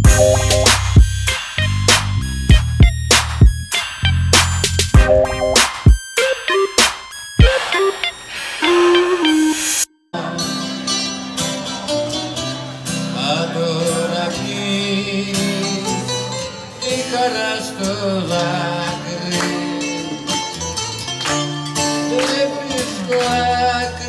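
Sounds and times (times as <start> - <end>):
person singing: 0.0 - 0.7, 10.2 - 11.9, 13.2 - 20.6, 21.9 - 24.0
plucked string instruments: 0.0 - 0.8.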